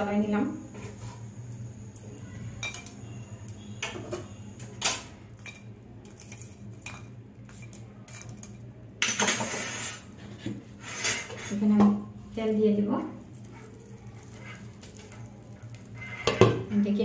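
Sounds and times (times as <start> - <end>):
metal spatula scraping steel bowl: 7.6 - 10.2, 10.8 - 11.7, 14.1 - 16.7.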